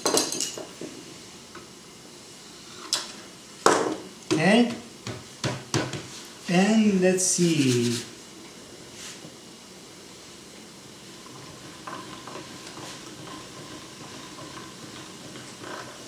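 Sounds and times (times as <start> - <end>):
background hiss: 0.0 - 13.1
hand-cranked pasta machine turning: 11.2 - 16.0.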